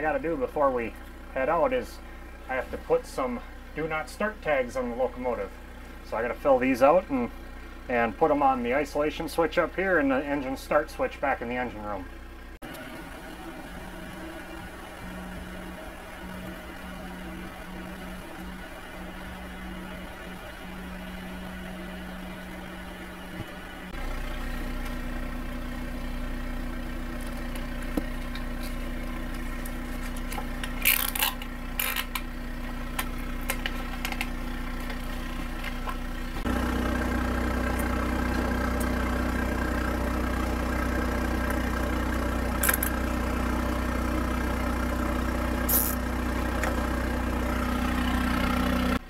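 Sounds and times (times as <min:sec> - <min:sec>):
air compressor droning: 0:12.6 - 0:49.0.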